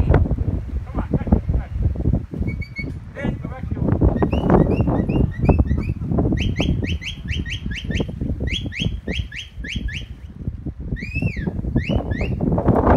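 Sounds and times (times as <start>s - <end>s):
wind on microphone: 0.0s - 12.9s
shepherd's whistle: 4.2s - 10.2s, 11.0s - 12.4s.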